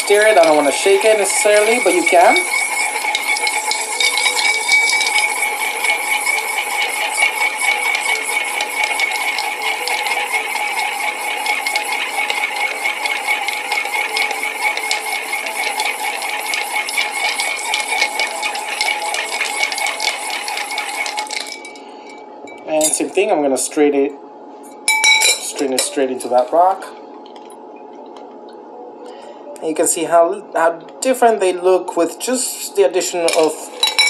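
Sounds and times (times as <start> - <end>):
ice cubes clinking in glass: 2.5 - 5.5, 17.0 - 21.8, 33.3 - 34.0.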